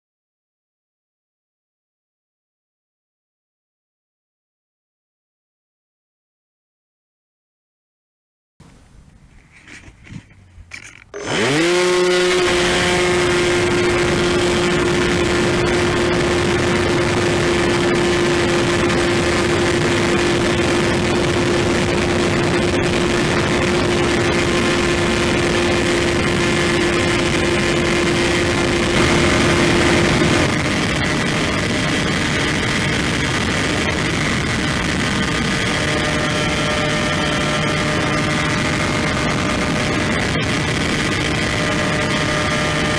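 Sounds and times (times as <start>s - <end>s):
electric motor high whine: 10.8s - 42.9s.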